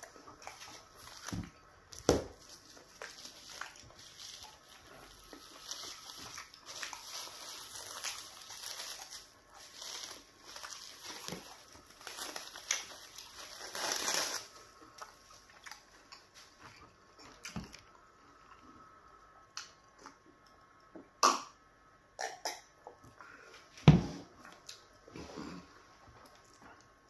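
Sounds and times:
plastic wrapping crinkling: 0:00.0 - 0:16.6.

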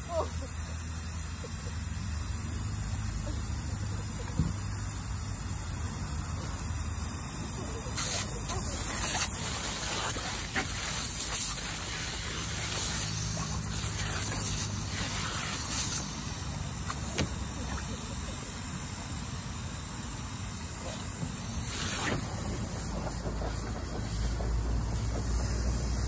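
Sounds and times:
water spraying from hose: 0:07.2 - 0:18.6, 0:20.7 - 0:26.0.

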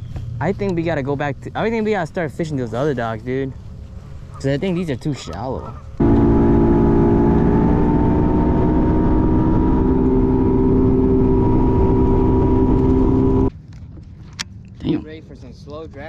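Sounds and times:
outboard motor droning: 0:06.0 - 0:13.5.

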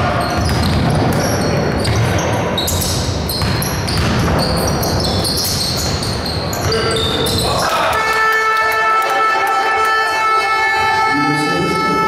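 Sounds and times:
sneaker squeaks: 0:00.0 - 0:07.8
basketball bouncing: 0:00.1 - 0:06.9
crowd din: 0:06.6 - 0:12.0.

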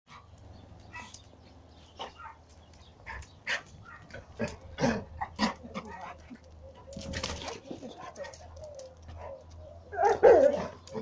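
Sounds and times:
dog barking: 0:10.0 - 0:10.7.

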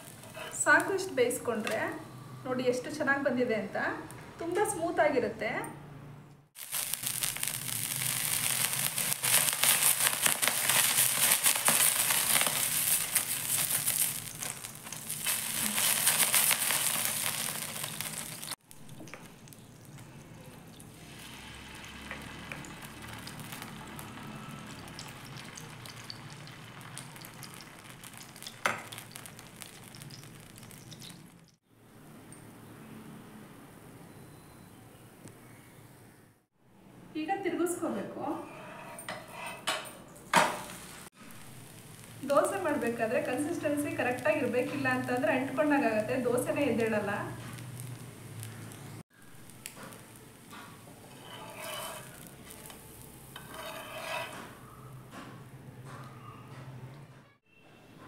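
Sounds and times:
batter sizzling on pan: 0:00.0 - 0:01.8, 0:06.6 - 0:31.6, 0:40.3 - 0:55.2
hot pan sizzling: 0:00.0 - 0:02.3, 0:06.6 - 0:31.6, 0:40.3 - 0:55.6.

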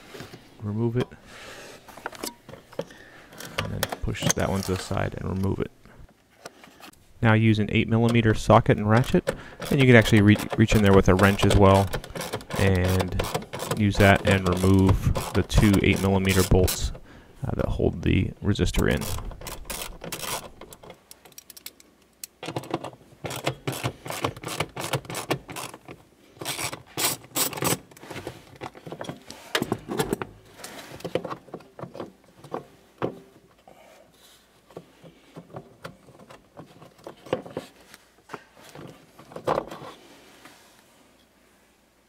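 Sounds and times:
ratchet clicking: 0:09.0 - 0:16.8.

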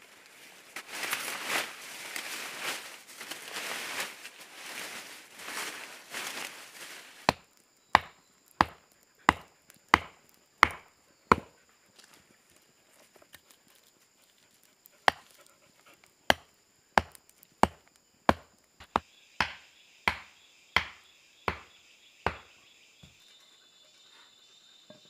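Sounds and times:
leafy branches rustling: 0:00.0 - 0:07.4
chopping wood: 0:07.2 - 0:11.6, 0:15.0 - 0:15.4, 0:16.3 - 0:21.7, 0:22.3 - 0:22.5.

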